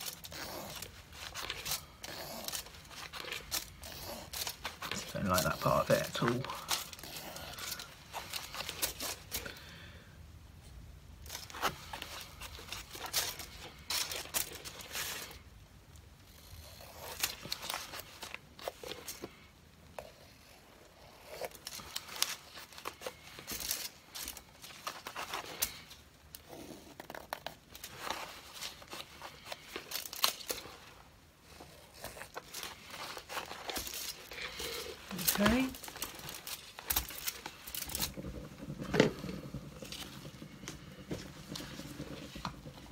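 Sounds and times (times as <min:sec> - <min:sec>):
paper towel rustling: 0:00.0 - 0:09.5, 0:27.9 - 0:42.9
plastic gloves crinkling: 0:00.0 - 0:10.2, 0:11.0 - 0:16.0, 0:16.6 - 0:19.6, 0:21.2 - 0:42.9.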